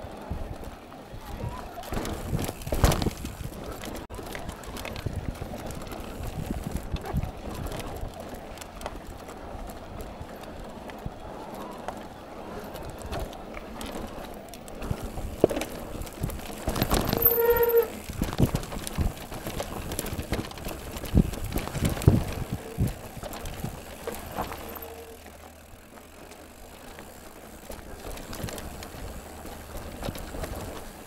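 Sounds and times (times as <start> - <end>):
mountain bike clattering: 0.0 - 31.0
bike squeal: 16.7 - 18.2, 24.3 - 25.3.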